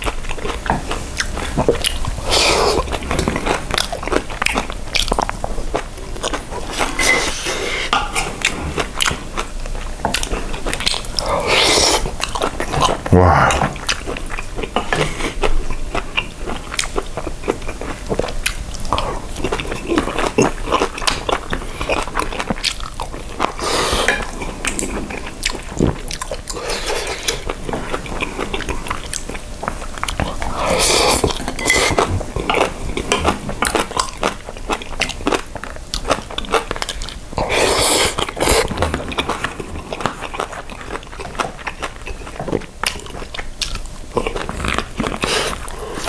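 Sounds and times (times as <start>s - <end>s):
chewing and biting: 0.0s - 46.0s
slurping noodles: 2.0s - 3.6s, 11.2s - 12.1s, 23.6s - 25.0s, 25.8s - 27.5s, 30.4s - 33.4s, 37.4s - 39.0s, 44.5s - 46.0s.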